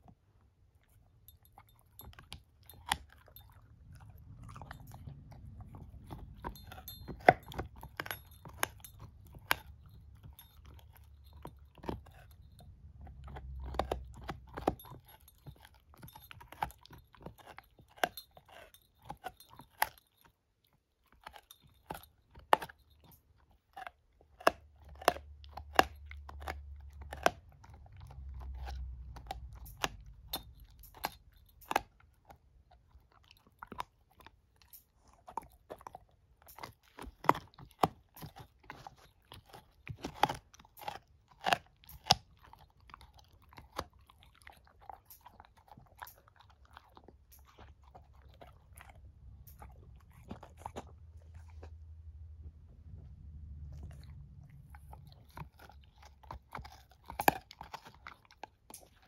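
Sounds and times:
puppy crunching a chew stick: 0:00.0 - 0:59.0
low rumble: 0:48.7 - 0:55.4.

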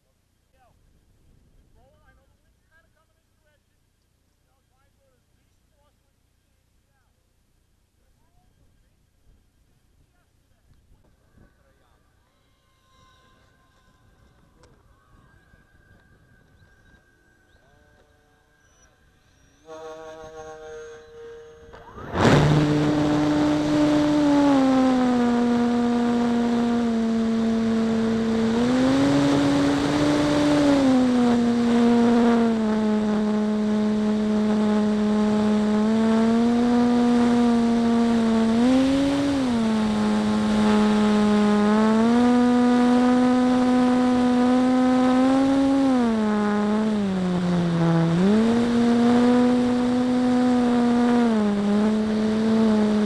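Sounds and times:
model airplane motor droning: 0:11.0 - 0:53.0.

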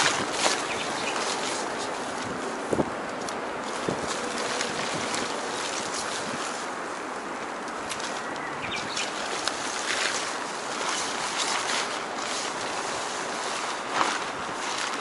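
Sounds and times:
tent rustles and taps: 0:00.0 - 0:15.0
wind: 0:00.0 - 0:15.0.

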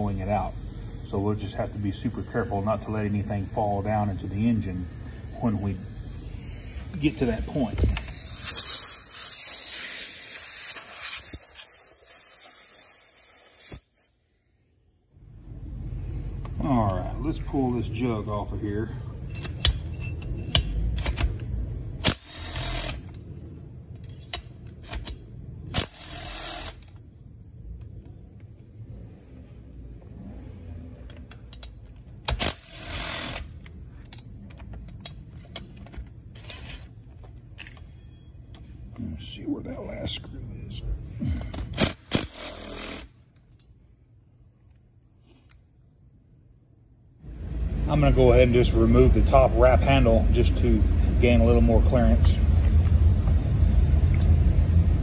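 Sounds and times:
air blow gun hissing: 0:00.1 - 0:14.5.

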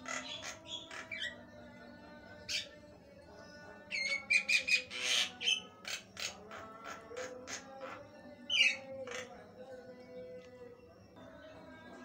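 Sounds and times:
bird harsh squawks: 0:00.0 - 0:01.4.

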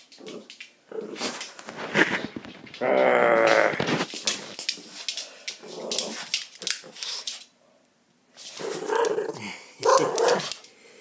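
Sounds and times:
dog growling: 0:05.6 - 0:07.0, 0:08.6 - 0:10.5.

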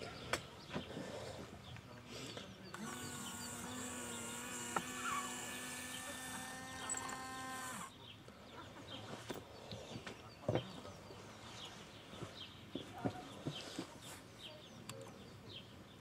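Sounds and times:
small electric motor whining: 0:02.7 - 0:07.9.

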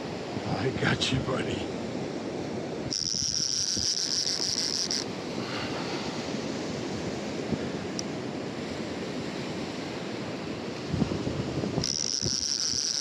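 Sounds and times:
surf washing on beach: 0:00.0 - 0:13.0
wind on microphone: 0:00.0 - 0:13.0
fishing reel drag whine: 0:02.9 - 0:05.2, 0:11.8 - 0:13.0.

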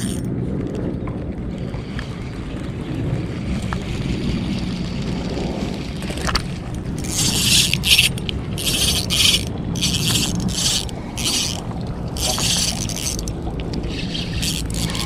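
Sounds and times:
fishing reel drag buzzing: 0:00.0 - 0:00.3, 0:07.0 - 0:15.0.

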